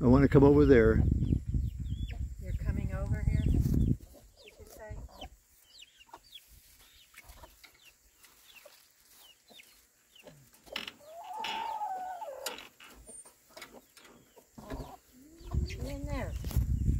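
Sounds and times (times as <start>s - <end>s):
chickens clucking: 0.3s - 16.9s
chicken long drawn-out call: 10.9s - 12.6s.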